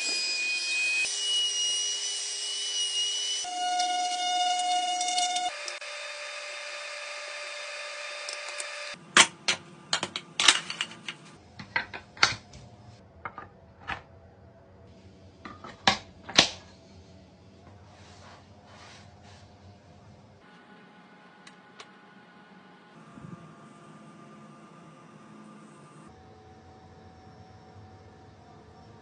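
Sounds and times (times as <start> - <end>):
handheld power tool running: 3.0 - 9.0.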